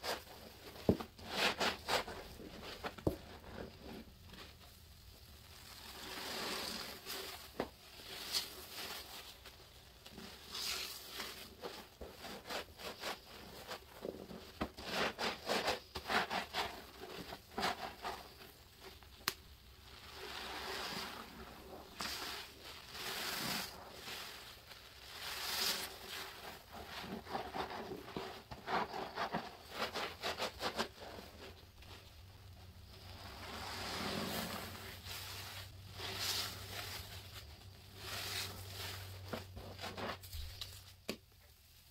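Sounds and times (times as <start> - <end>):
wet sponge squelching: 19.7 - 32.1, 32.9 - 40.7.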